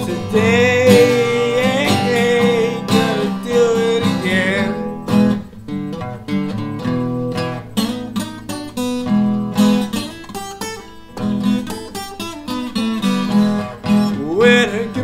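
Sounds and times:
man singing: 0.0s - 5.0s, 14.0s - 15.0s
acoustic guitar strumming: 0.0s - 15.0s.

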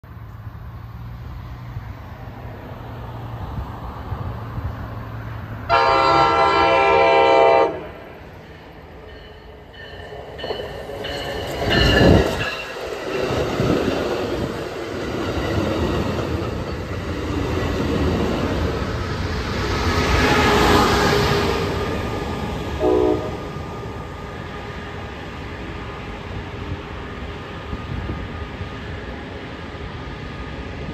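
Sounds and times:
train rumbling: 0.0s - 30.9s
train horn blast: 5.7s - 8.2s, 22.8s - 23.6s
train wheels clacking over rails: 8.2s - 24.0s.

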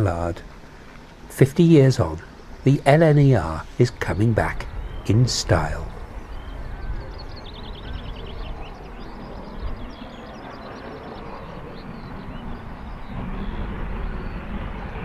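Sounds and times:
songbird trilling and chirping: 1.7s - 13.2s.

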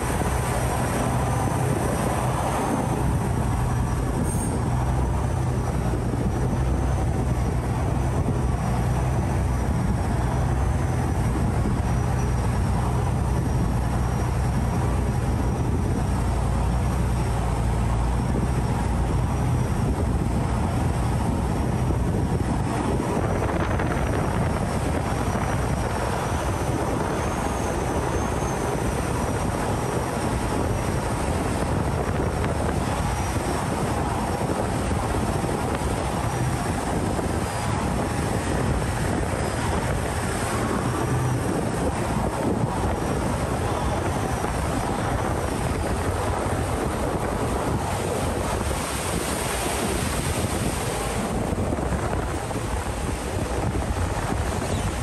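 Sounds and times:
boat engine droning: 0.0s - 55.0s
rushing water: 0.0s - 55.0s
wind: 0.0s - 55.0s.

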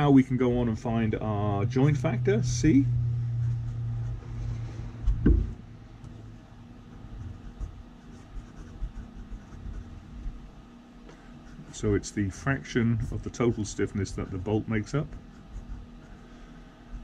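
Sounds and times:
low hum: 0.0s - 17.0s
dull thump: 5.0s - 5.6s
pen writing on paper: 7.2s - 10.4s, 15.0s - 16.1s.

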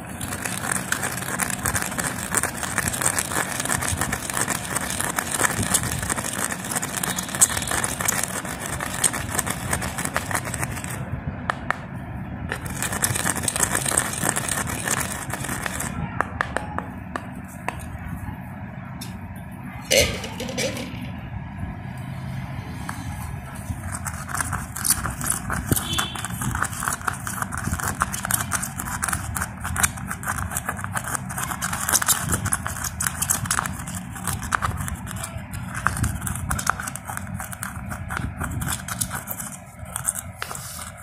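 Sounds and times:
hammer crushing seeds in shell: 0.0s - 11.8s, 12.5s - 16.6s, 23.7s - 41.0s.

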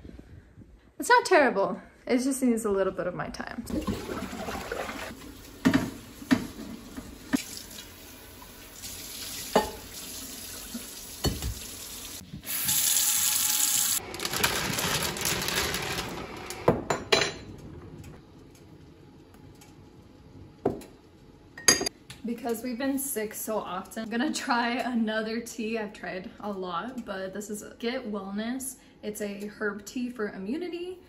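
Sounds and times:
sponge washing a pot: 3.7s - 7.9s.

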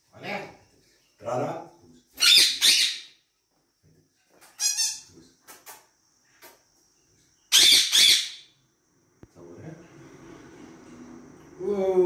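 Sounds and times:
parrots calling shrilly: 2.2s - 3.2s, 4.5s - 5.1s, 7.5s - 8.6s.

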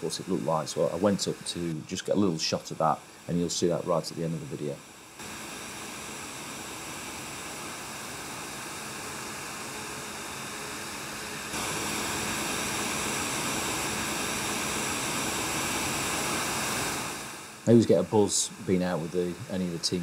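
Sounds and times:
steady machine rushing noise: 0.0s - 20.0s.

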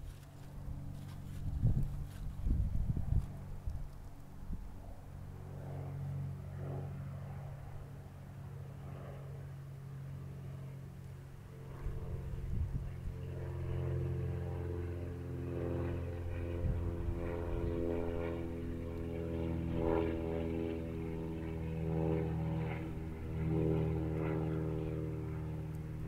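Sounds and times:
vehicle engine running at low speed: 0.0s - 26.0s.

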